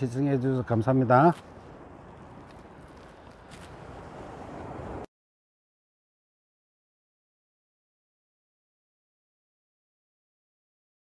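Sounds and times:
low rushing microphone noise: 0.0s - 5.1s.

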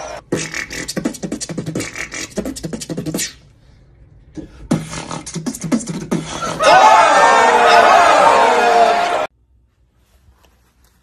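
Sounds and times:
person beatboxing: 0.2s - 3.5s, 4.3s - 6.6s
loud excited voices: 6.4s - 9.3s.

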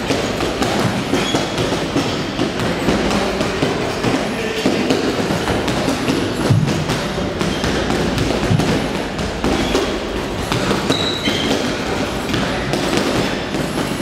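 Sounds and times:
punches thudding on punching bag: 0.0s - 14.0s.

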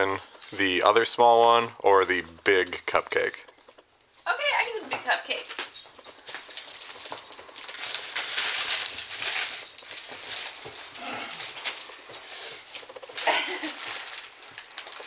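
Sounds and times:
wrapping paper tearing and crinkling: 6.6s - 15.0s.

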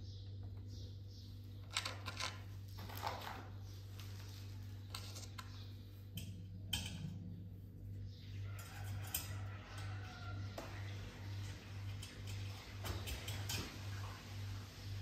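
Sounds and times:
low hum: 3.5s - 15.0s.

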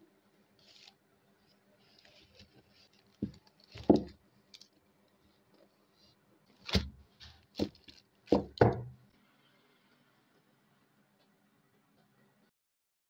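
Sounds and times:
plastic wrapping crinkling: 0.6s - 4.8s, 6.5s - 8.7s.

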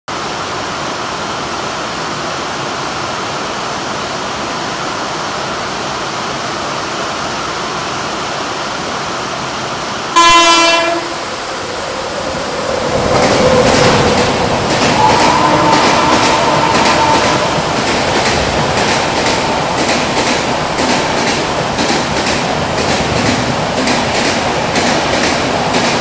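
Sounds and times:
rumble of approaching train: 0.3s - 26.0s
train horn blast: 10.1s - 19.7s
heavy rain falling: 10.2s - 24.3s.

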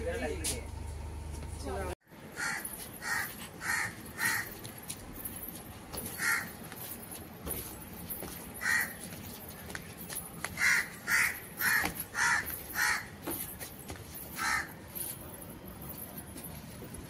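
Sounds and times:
bird calling roughly: 2.4s - 4.6s, 6.2s - 6.6s, 10.6s - 13.1s.

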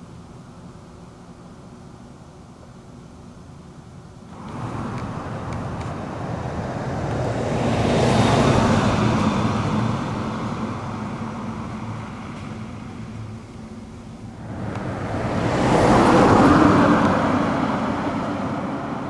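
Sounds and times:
vehicle driving past: 4.3s - 19.0s.

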